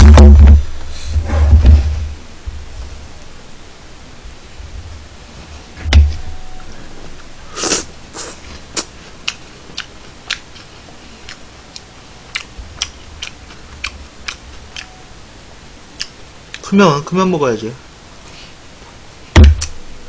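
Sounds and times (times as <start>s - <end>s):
thump: 0.0s - 2.0s, 19.4s - 19.7s
chewing smacks: 8.2s - 14.9s, 16.0s - 16.6s.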